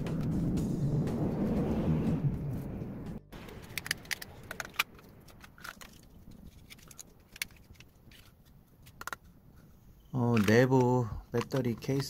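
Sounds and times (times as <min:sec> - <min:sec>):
plastic battery pack clicks and rattles: 0:03.4 - 0:09.4, 0:10.1 - 0:12.0.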